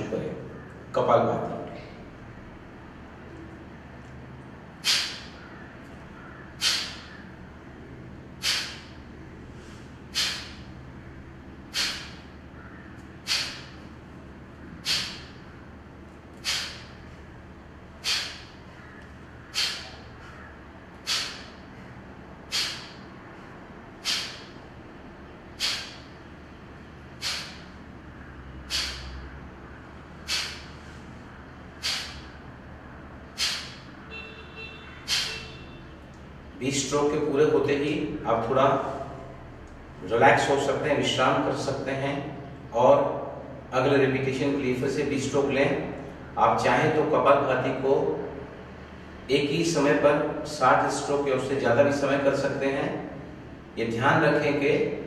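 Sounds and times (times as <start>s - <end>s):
man's forceful nasal exhalations: 4.8s - 5.4s, 6.6s - 7.1s, 8.4s - 8.9s, 9.6s - 10.7s, 11.6s - 12.3s, 13.2s - 13.9s, 14.7s - 15.4s, 16.3s - 17.0s, 17.9s - 18.6s, 19.5s - 20.3s, 21.0s - 21.7s, 22.5s - 23.1s, 24.0s - 24.6s, 25.5s - 26.2s, 27.2s - 27.8s, 28.7s - 29.2s, 30.2s - 31.1s, 31.8s - 32.4s, 33.3s - 33.9s, 35.1s - 35.5s.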